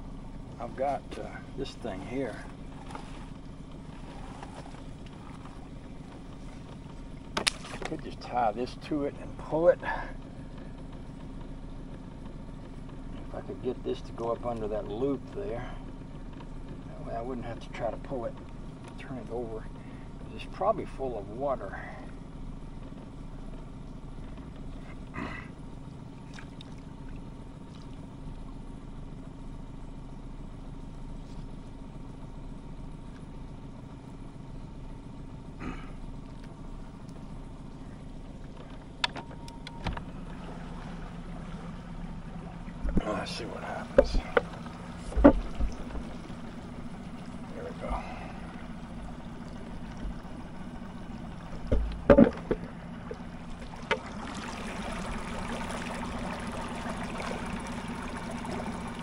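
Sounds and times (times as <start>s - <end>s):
water churning: 0.0s - 11.2s, 24.2s - 28.7s, 40.0s - 59.0s
boat motor humming: 0.0s - 59.0s
sharp knocks: 43.9s - 46.1s, 51.6s - 52.7s.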